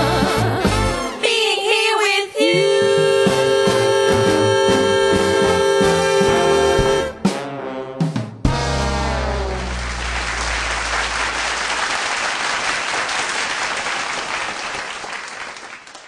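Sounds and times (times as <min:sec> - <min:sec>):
big band final chord: 0:05.9 - 0:12.1
audience applause: 0:09.4 - 0:16.0.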